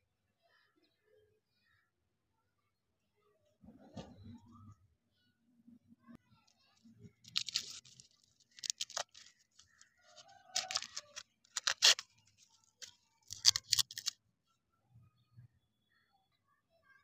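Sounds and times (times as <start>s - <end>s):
candy wrapper crinkling: 7.2s - 14.1s.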